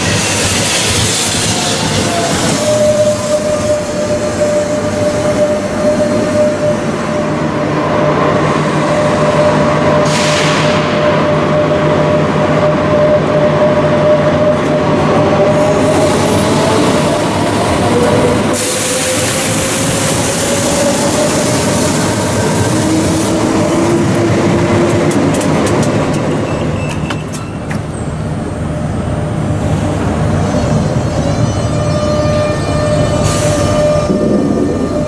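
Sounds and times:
electric train whine: 0.0 - 35.0
train rumble and hiss: 0.0 - 35.0.

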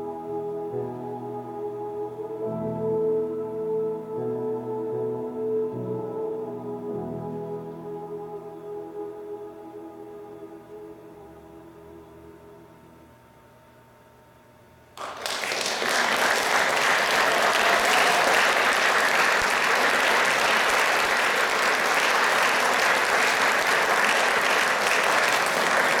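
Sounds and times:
audience applauding: 15.0 - 26.0.

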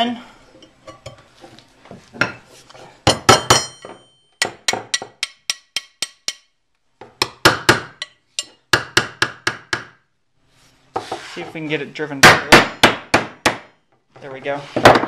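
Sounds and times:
hard metal strikes ringing: 3.1 - 6.5
steel tapping on steel: 3.5 - 6.5.

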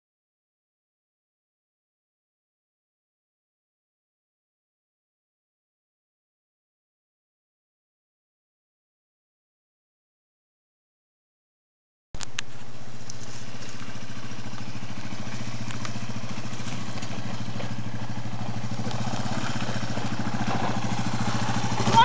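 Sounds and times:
motorcycle engine running: 12.2 - 22.0.

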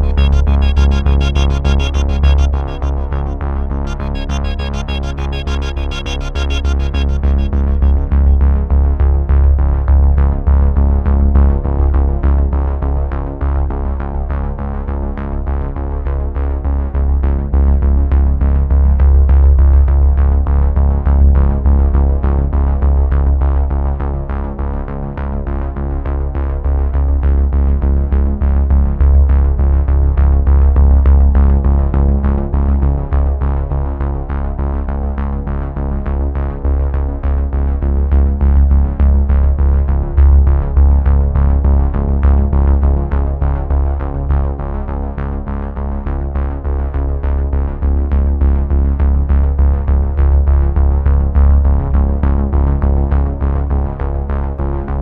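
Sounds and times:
electronic music with fast beat: 0.0 - 8.7
pulsing synthesizer notes: 0.0 - 9.0
deep sustained bass: 0.0 - 11.5, 36.4 - 55.0.

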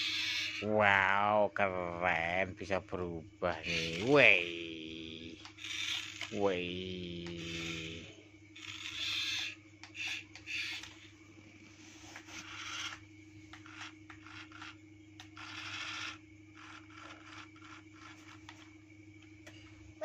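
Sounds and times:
toy car motor humming: 0.0 - 0.7, 3.6 - 11.1, 11.8 - 18.8
plastic gears grinding: 5.4 - 6.4, 8.6 - 11.0, 13.6 - 18.7.

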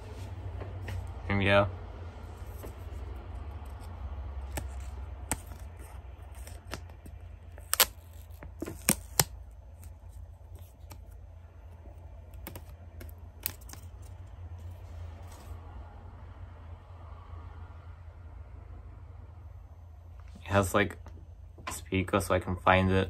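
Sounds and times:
steady low hum: 0.0 - 23.0
plastic film peeling: 2.3 - 11.2, 12.3 - 14.2.

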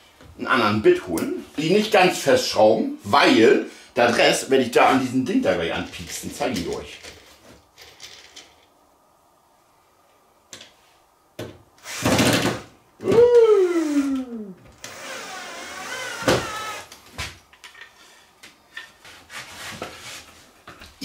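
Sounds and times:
cordless drill driving screws: 11.8 - 12.6, 14.8 - 17.0.

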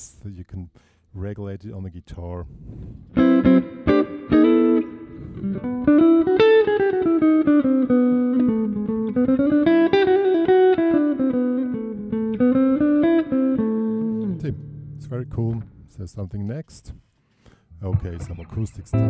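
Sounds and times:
electric guitar playing: 3.1 - 15.9, 18.0 - 19.0.

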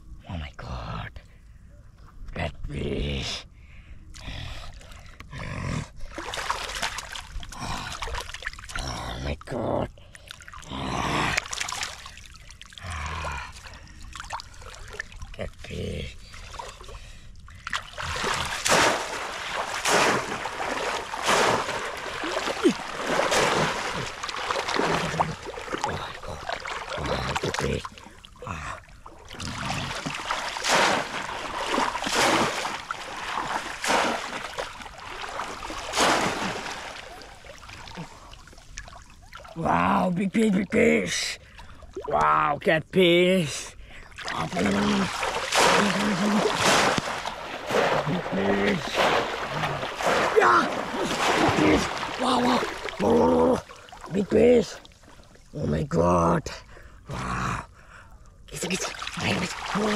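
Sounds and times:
shallow water splashing: 6.0 - 8.9, 10.0 - 40.4, 41.4 - 42.4, 43.7 - 55.6, 58.5 - 59.9.

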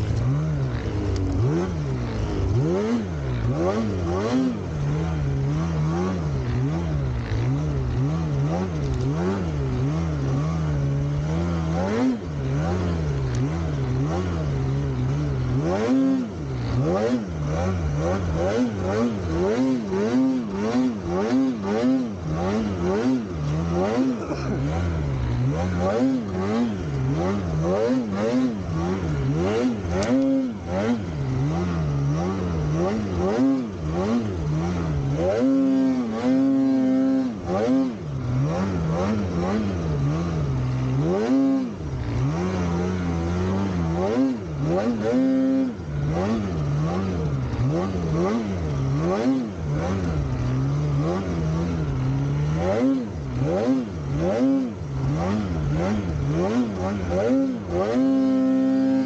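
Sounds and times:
snowmobile engine revving: 0.0 - 59.0.

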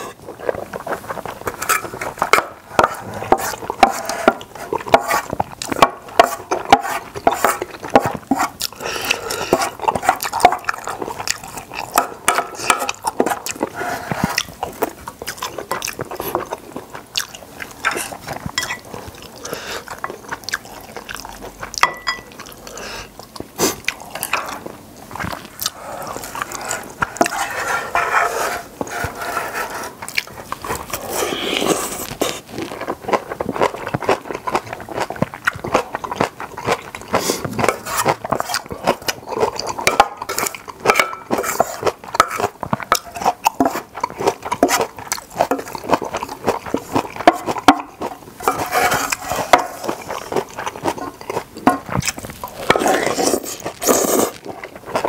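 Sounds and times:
wet chewing and slurping: 0.0 - 55.0
utensils clinking on metal pot: 17.9 - 18.9, 21.8 - 22.3.

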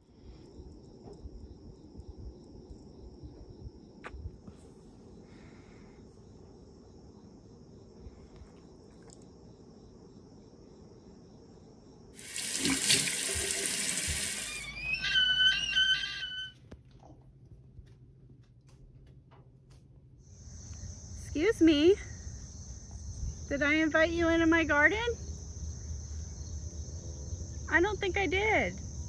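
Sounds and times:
water running from a tap: 12.2 - 14.7.

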